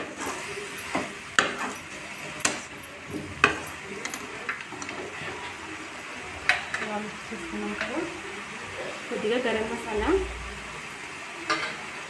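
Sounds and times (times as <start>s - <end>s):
metal spoon scraping in pan: 0.0s - 5.6s.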